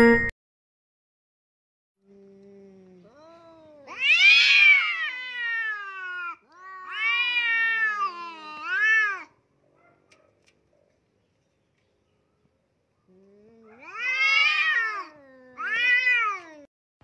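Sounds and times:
cats yowling: 0:03.1 - 0:09.4, 0:13.5 - 0:16.7.

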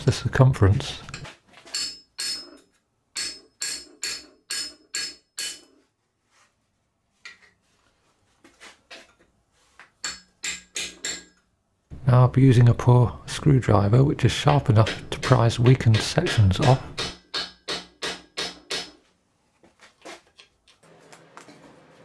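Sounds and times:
hammer striking metal: 0:01.1 - 0:05.8, 0:10.0 - 0:11.4, 0:14.4 - 0:19.0.

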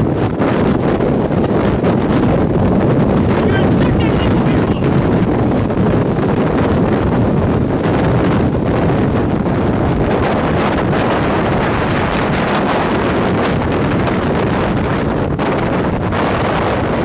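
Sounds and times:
strong wind buffeting vehicle: 0:00.0 - 0:17.0
vehicle road noise: 0:03.2 - 0:05.4.

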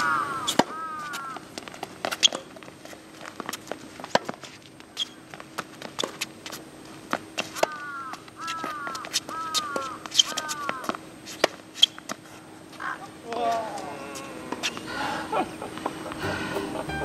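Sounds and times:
racket hitting tennis ball: 0:00.0 - 0:02.6, 0:03.2 - 0:07.8, 0:08.6 - 0:12.2
footsteps and shoe scuffs: 0:00.9 - 0:14.9.

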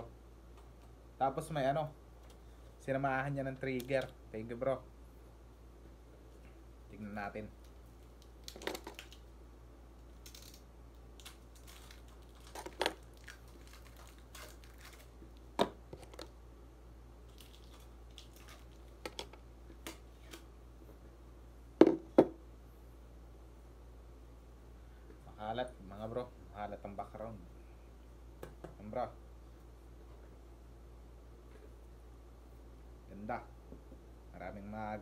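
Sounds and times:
packaging rustling: 0:11.2 - 0:16.3.

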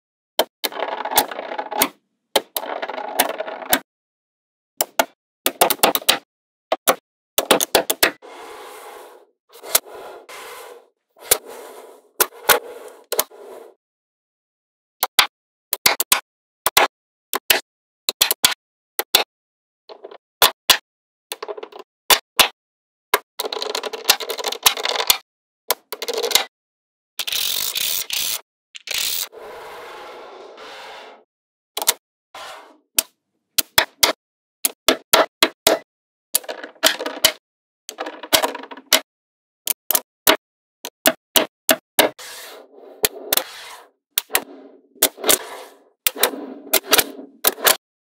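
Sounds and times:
soft scrape: 0:08.2 - 0:13.8, 0:29.3 - 0:31.2, 0:32.4 - 0:32.8, 0:45.4 - 0:46.7.

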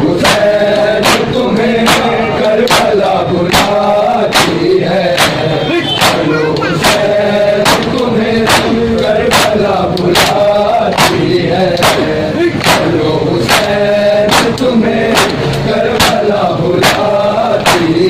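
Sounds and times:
crowd slapping chests in unison: 0:00.0 - 0:18.0
men chanting: 0:00.0 - 0:18.0.

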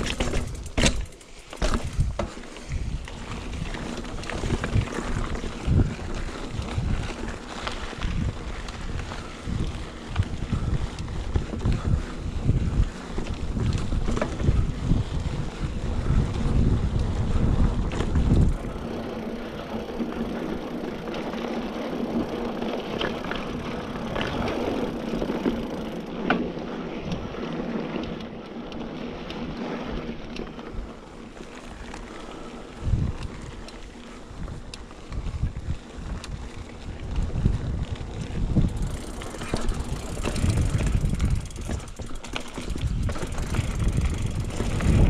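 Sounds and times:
bike clicks and rattles: 0:00.0 - 0:45.0
tyres rolling on dirt: 0:00.0 - 0:45.0
wind buffeting microphone: 0:01.6 - 0:21.1, 0:32.7 - 0:45.0.

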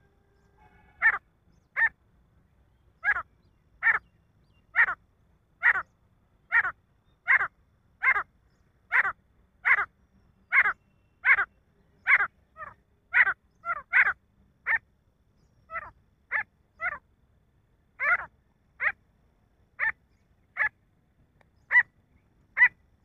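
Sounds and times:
francolin calling: 0:03.0 - 0:05.0, 0:05.6 - 0:05.9, 0:06.5 - 0:14.8, 0:18.0 - 0:19.0, 0:21.6 - 0:22.8.

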